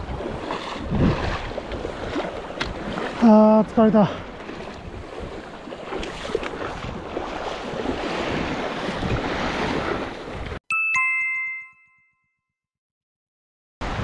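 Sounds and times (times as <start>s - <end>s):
wind on microphone: 0.0s - 3.1s, 4.2s - 10.6s
waves washing on sandy shore: 0.0s - 10.6s
two-note chime: 10.7s - 12.5s.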